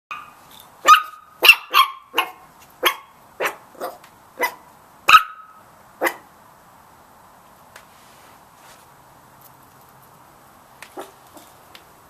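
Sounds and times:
puppies yapping: 0.1 - 6.2.

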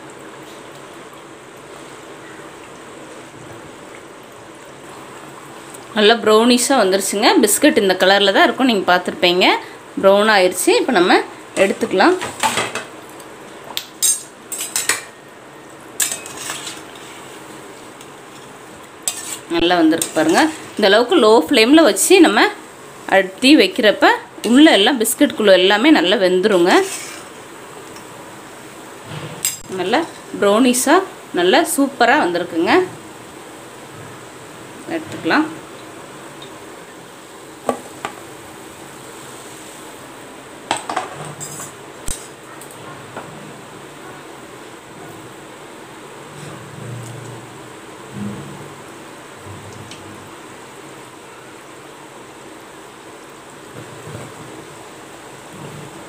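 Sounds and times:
oil sizzling: 0.0 - 46.4, 47.4 - 56.0
faint steady hiss: 0.0 - 56.0
metal skimmer scraping a pan: 16.0 - 17.4, 19.0 - 20.8, 26.5 - 27.4.

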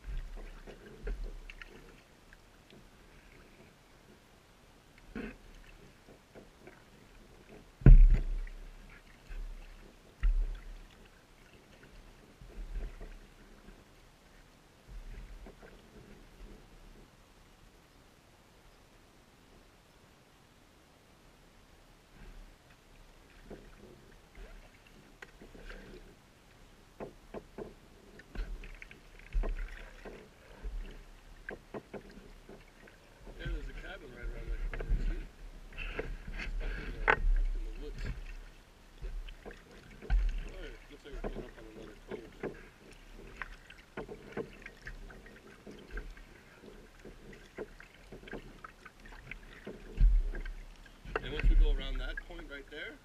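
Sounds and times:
paddle splashing water: 0.0 - 19.8, 21.6 - 53.0
low steady rumble: 7.0 - 44.0, 44.7 - 53.0
sharp knocks: 7.8 - 8.4
low thumps: 7.8 - 8.5, 49.3 - 52.3.

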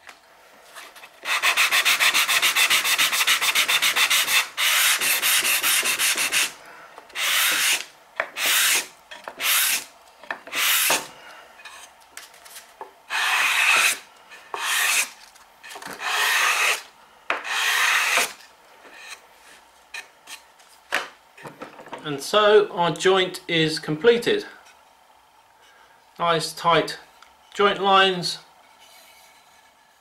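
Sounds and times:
sanding block scratching wood: 1.2 - 6.6, 7.2 - 9.9, 10.5 - 11.1, 13.1 - 15.1, 16.0 - 16.8, 17.4 - 18.4.

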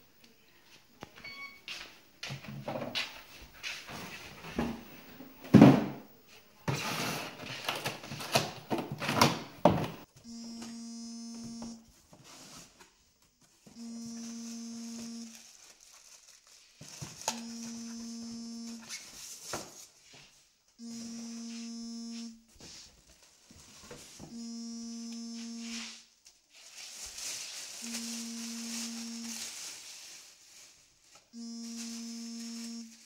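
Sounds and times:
packaging rustling and clattering: 15.3 - 17.4.

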